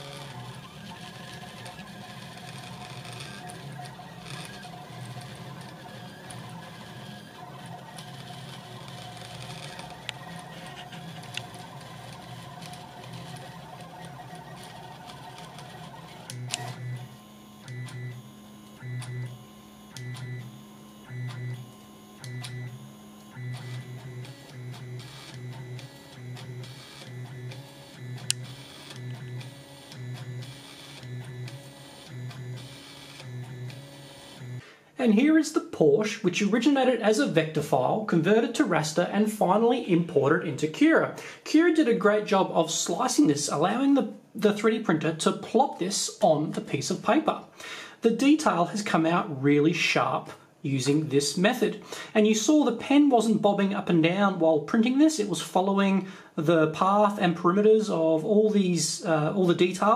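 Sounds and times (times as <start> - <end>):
printer click: 0.0 - 18.0, 23.2 - 34.5
printer stepper motors whirring: 0.0 - 34.6.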